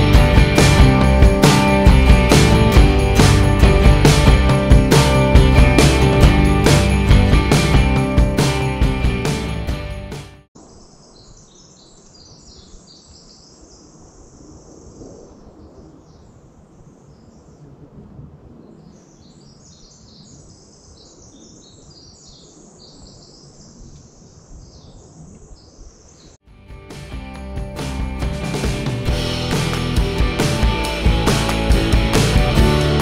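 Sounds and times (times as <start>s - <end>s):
songbirds chirping: 10.6s - 26.4s.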